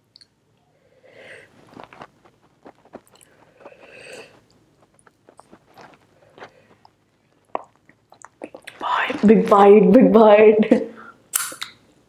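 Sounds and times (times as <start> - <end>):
wet chewing and smacking: 1.5 - 9.3.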